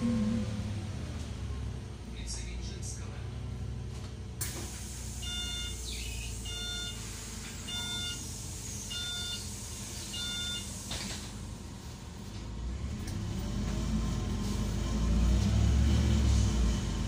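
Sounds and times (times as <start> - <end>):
bus engine idling hum: 0.0 - 17.0
electronic short beeps: 5.2 - 7.0, 7.7 - 8.2, 8.9 - 9.4, 10.2 - 10.7.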